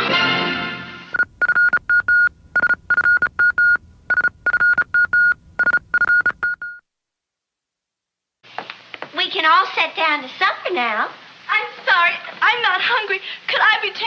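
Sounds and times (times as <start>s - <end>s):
electronic beeps: 1.1s - 6.8s.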